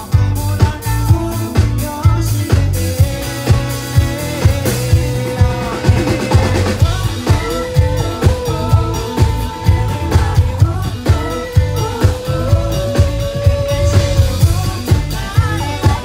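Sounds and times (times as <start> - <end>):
live pop-rock band: 0.0 - 16.0
man singing long note: 4.6 - 15.8.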